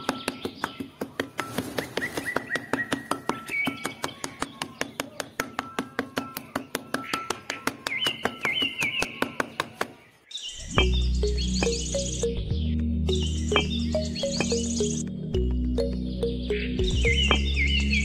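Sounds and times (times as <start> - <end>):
faint bird-like chirps: 10.1 - 15.1.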